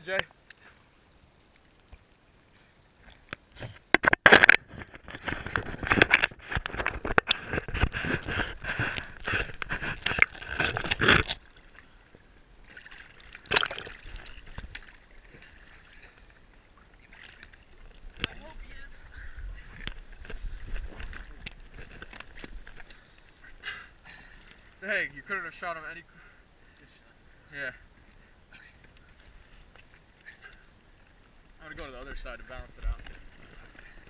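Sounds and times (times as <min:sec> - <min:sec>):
water gurgling: 0:00.0 - 0:25.9
water sloshing and splashing: 0:00.2 - 0:25.6, 0:26.5 - 0:34.0
sharp splash: 0:12.6 - 0:16.1.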